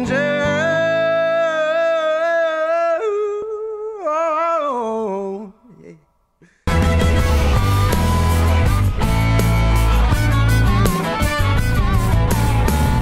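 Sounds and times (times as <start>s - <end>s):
solo wordless vocal: 0.0s - 6.7s
loud band music: 6.7s - 13.0s.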